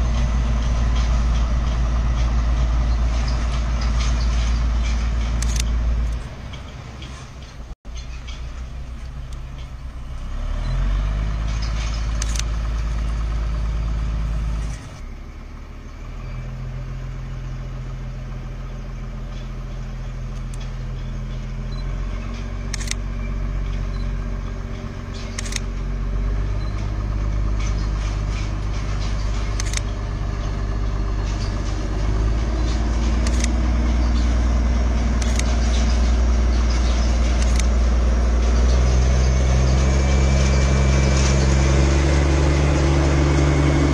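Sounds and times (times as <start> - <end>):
engine running: 0.0 - 43.9
sharp clicks: 4.8 - 7.6, 11.5 - 13.1, 20.3 - 20.8, 22.7 - 23.1, 23.7 - 25.7, 26.5 - 30.1, 31.3 - 38.6.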